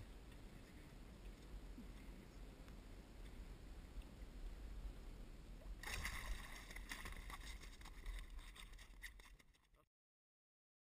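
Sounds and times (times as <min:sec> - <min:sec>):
water splashing: 0:05.6 - 0:09.7.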